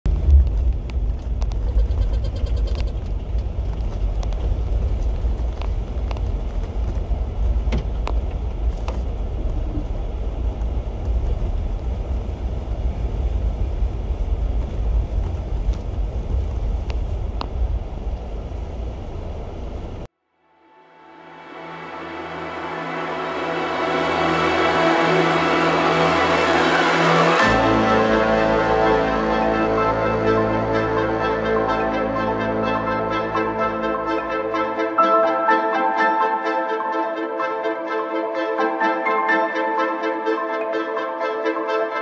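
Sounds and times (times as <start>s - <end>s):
car engine and road rumble: 0.0s - 20.1s.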